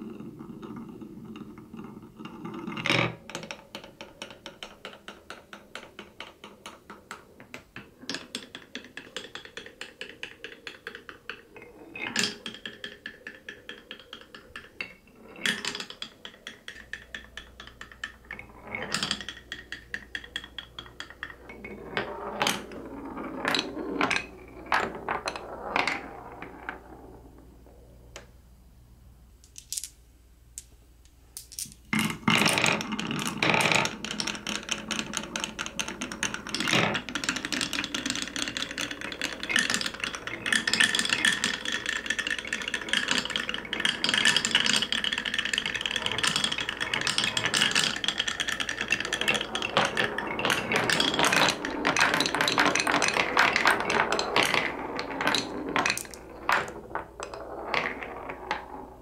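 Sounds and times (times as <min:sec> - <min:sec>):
marble clattering on wooden tracks: 0:00.2 - 0:27.4, 0:31.4 - 0:59.0
marble dropping with knocks: 0:29.4 - 0:30.0, 0:31.4 - 0:34.6, 0:39.6 - 0:58.8.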